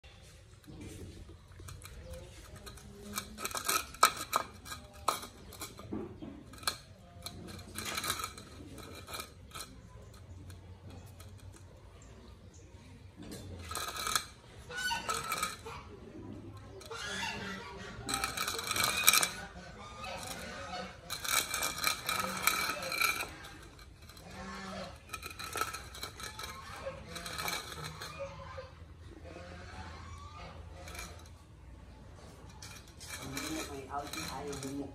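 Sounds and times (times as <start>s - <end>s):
food bowls clinking: 0.0s - 34.9s.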